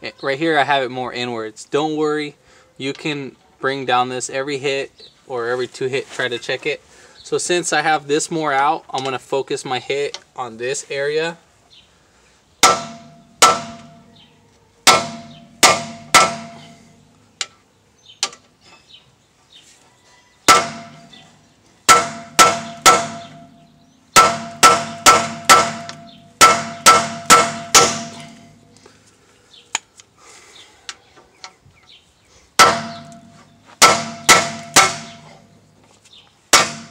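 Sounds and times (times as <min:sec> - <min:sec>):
hammer clanging on steel: 0:12.6 - 0:14.1, 0:14.8 - 0:16.8, 0:20.5 - 0:21.3, 0:21.9 - 0:28.7, 0:32.6 - 0:35.5, 0:36.5 - 0:36.9.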